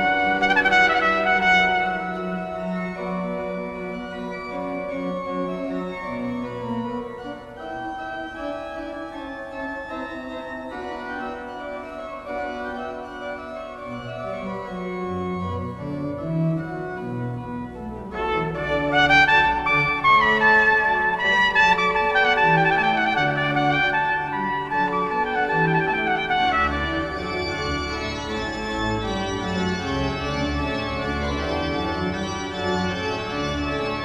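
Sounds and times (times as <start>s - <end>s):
trumpet: 0.0s - 4.3s, 18.0s - 34.0s
pipe organ playing held notes: 0.0s - 34.0s.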